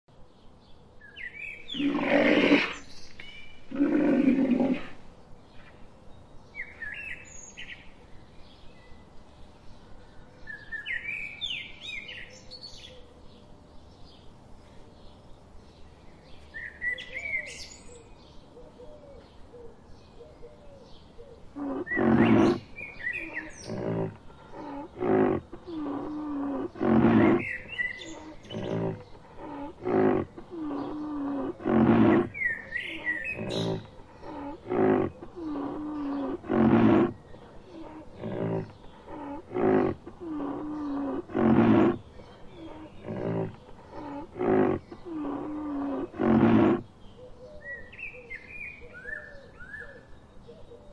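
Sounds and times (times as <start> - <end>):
birds chirping: 1.0 - 5.8, 21.0 - 49.2
deep rhinoceros calls: 1.7 - 2.8, 3.7 - 5.0, 21.5 - 46.9
low drawn-out moan: 21.6 - 46.9.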